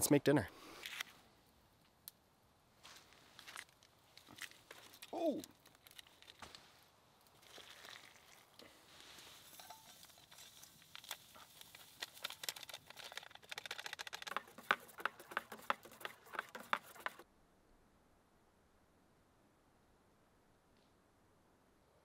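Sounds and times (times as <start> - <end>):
soft hiss: 0.1 - 12.4
small crackles and ticks: 3.3 - 6.6, 7.2 - 17.2
hot water pouring: 7.4 - 12.8.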